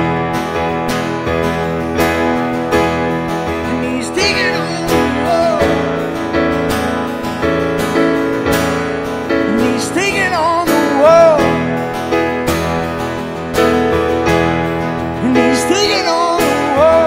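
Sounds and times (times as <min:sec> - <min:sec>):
acoustic guitar strumming: 0:00.0 - 0:17.0
stage piano: 0:00.0 - 0:17.0
man singing: 0:03.5 - 0:06.2, 0:09.4 - 0:12.0, 0:15.1 - 0:17.0.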